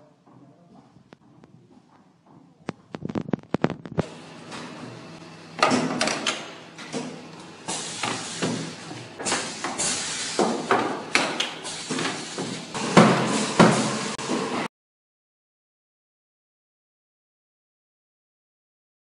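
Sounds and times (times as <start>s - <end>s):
machine metallic clunks: 5.5s - 14.5s.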